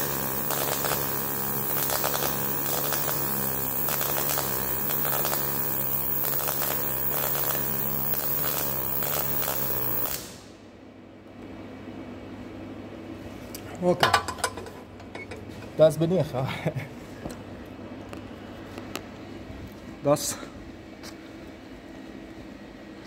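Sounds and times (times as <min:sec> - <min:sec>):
welding arc crackling: 0:00.0 - 0:10.5.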